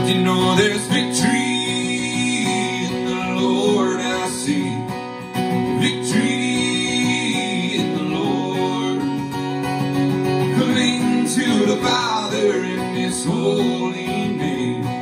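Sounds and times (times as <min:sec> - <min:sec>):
man singing: 0:00.0 - 0:09.4, 0:10.4 - 0:15.0
acoustic guitar strumming: 0:00.0 - 0:15.0.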